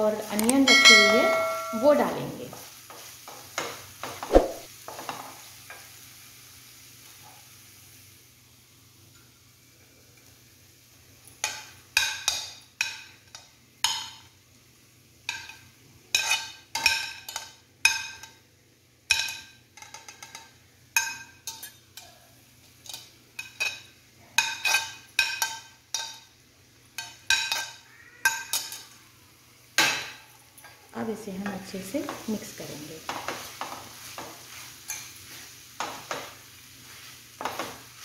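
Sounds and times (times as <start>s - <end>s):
metal spoon clinking on pan: 0.4s - 3.8s, 11.4s - 14.2s, 15.3s - 18.4s, 19.1s - 22.2s, 22.8s - 26.3s, 27.0s - 28.9s, 34.9s - 35.2s.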